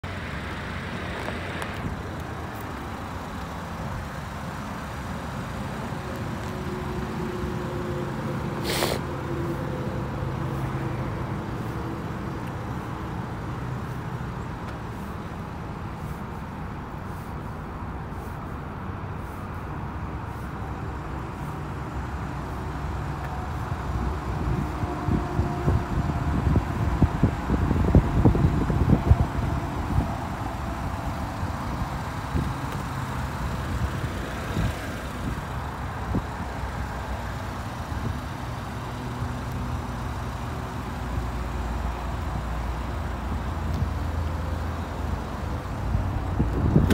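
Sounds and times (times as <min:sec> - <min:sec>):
low vehicle rumble: 0:00.0 - 0:46.9
short hiss: 0:08.6 - 0:09.1.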